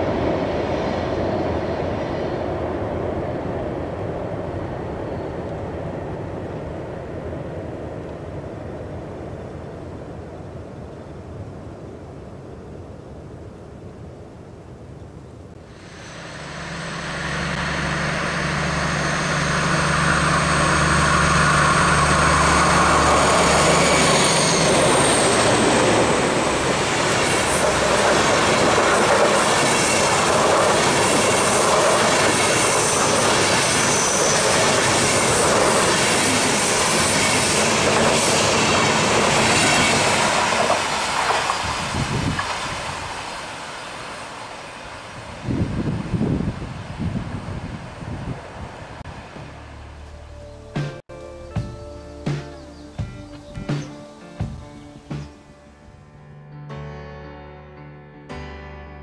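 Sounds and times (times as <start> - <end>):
diesel locomotive engine drone: 0.0 - 9.4, 15.5 - 56.0
train wheels clicking over rails: 15.8 - 43.6.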